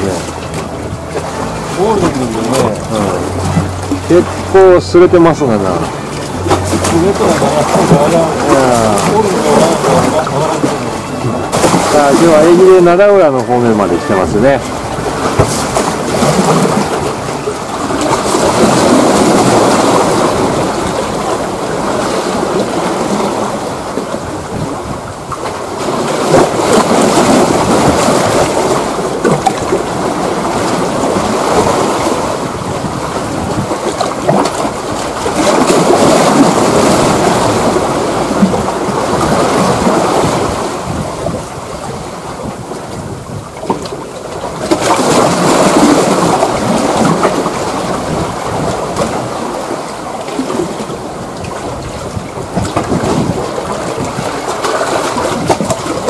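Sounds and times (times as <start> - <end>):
waves washing against rocks: 0.0 - 56.0.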